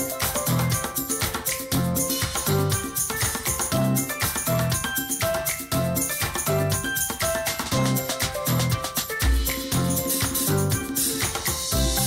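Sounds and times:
background music with beat: 0.0s - 12.0s.

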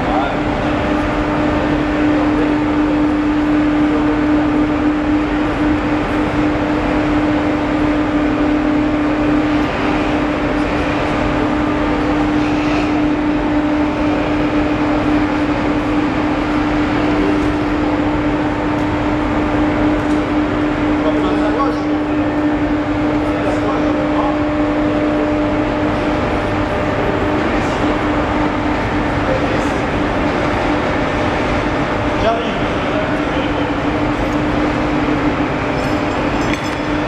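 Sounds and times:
overhead crane humming: 0.0s - 37.0s.

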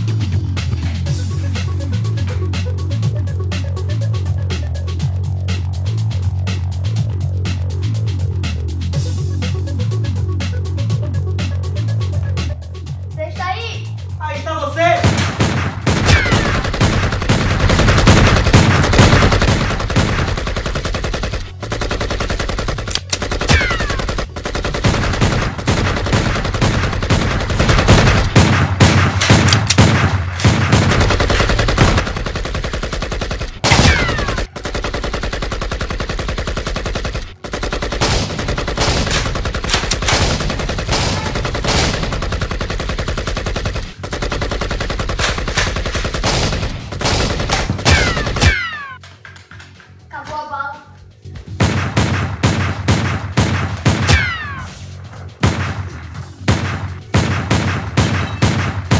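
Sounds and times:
automatic gunfire: 14.9s - 48.8s, 56.5s - 58.9s
bullet ricochet whistles: 58.0s - 58.6s.

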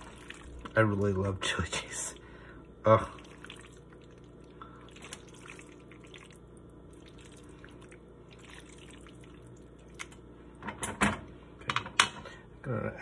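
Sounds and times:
noodles squelching in sauce: 0.0s - 0.8s, 1.9s - 10.2s.

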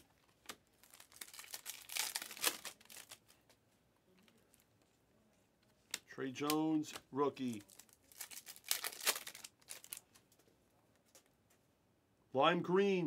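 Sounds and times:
foil wrapper crinkling: 0.0s - 3.4s, 7.5s - 10.1s.

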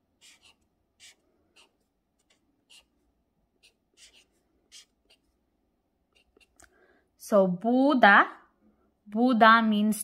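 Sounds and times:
marker scratching on paper: 0.0s - 5.4s, 6.1s - 6.7s.

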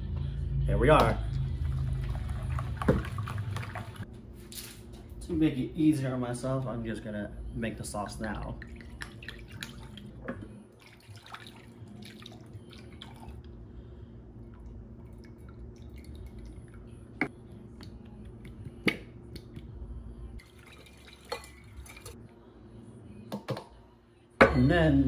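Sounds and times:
steady low hum: 0.0s - 25.0s
liquid dripping and moving: 1.4s - 4.1s, 8.5s - 13.6s, 14.4s - 16.9s, 20.4s - 22.2s.

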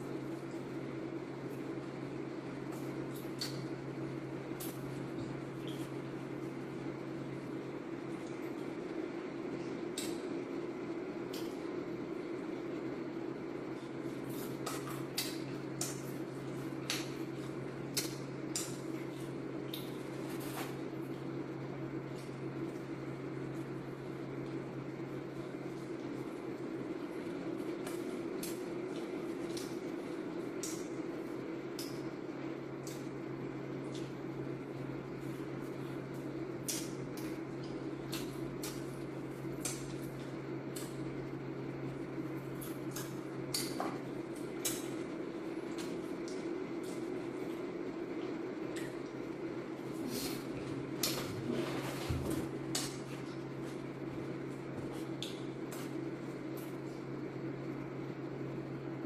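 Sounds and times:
steady low hum: 0.0s - 59.0s
crunchy chewing: 25.3s - 33.2s
chewing: 27.2s - 30.9s.

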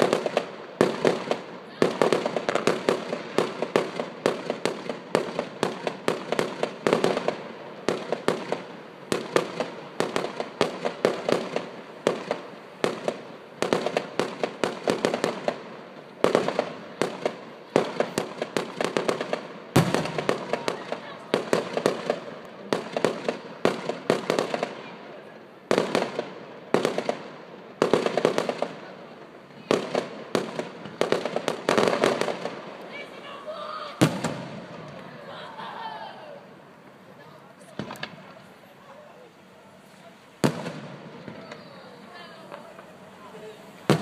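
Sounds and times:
fireworks bangs and crackles: 0.0s - 44.0s.

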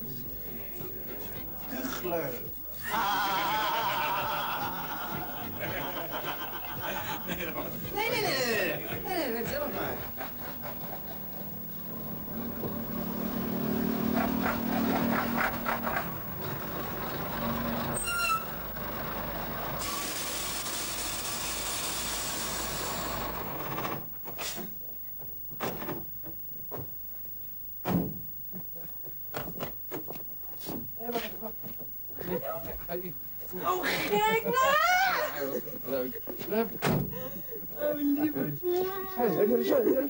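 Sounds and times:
lorry engine running: 9.6s - 21.7s
brake squeal: 10.6s - 21.6s
air brakes hissing: 19.8s - 23.4s.

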